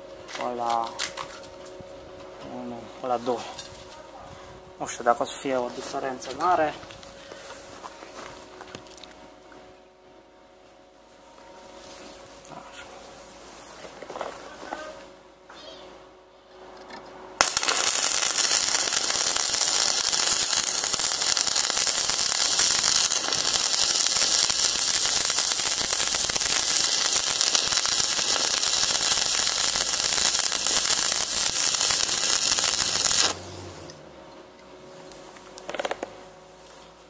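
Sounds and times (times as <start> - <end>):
welding arc crackling sizzle: 17.4 - 34.0, 35.6 - 36.9.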